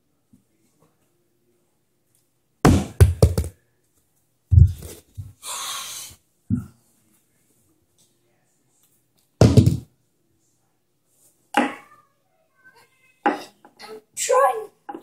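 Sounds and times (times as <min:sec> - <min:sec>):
plastic bottle knocking on wooden stairs: 0:02.7 - 0:03.5, 0:09.4 - 0:09.9.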